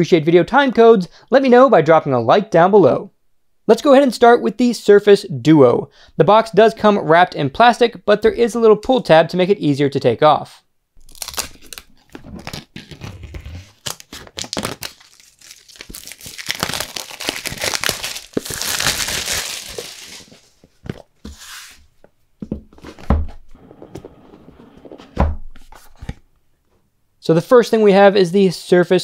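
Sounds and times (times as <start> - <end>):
plastic shrink-wrap crinkling: 11.0 - 20.7.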